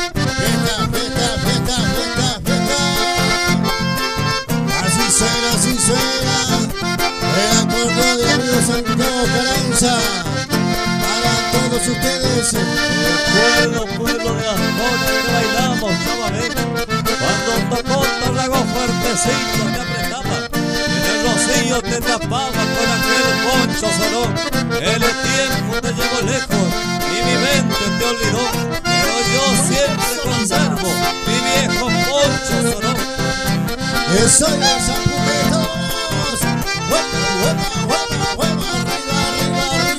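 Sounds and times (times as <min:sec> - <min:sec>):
accordions playing lively melody: 0:00.0 - 0:39.9
acoustic guitar: 0:00.0 - 0:39.9
steady beat: 0:00.1 - 0:13.6, 0:26.5 - 0:39.9.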